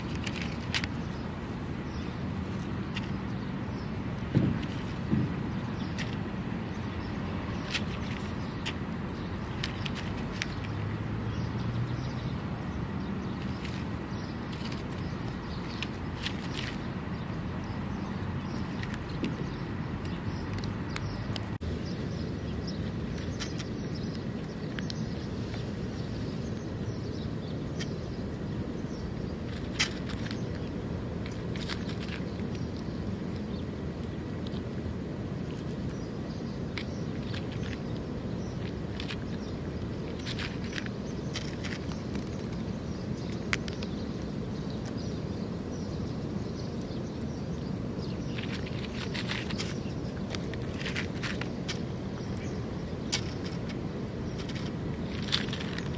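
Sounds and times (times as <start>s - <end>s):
low outdoor background noise: 0.0s - 55.9s
cat crunching dry kibble: 29.5s - 33.4s, 38.6s - 42.7s, 48.4s - 52.2s.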